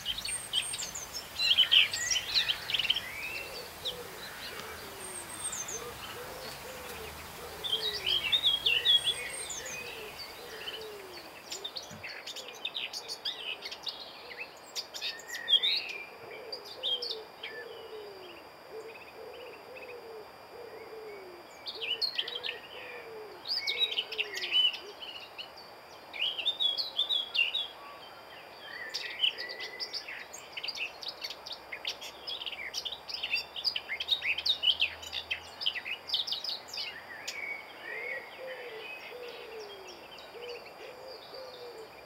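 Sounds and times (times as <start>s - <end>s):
low hooting bird call: 0.0s - 14.5s, 15.2s - 25.1s, 37.6s - 42.0s
birds chirping: 0.0s - 20.0s.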